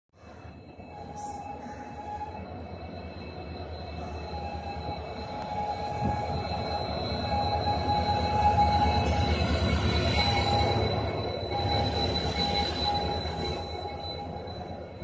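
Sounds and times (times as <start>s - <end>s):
diesel locomotives passing: 0.2s - 15.0s
high-pitched whines: 0.2s - 15.0s.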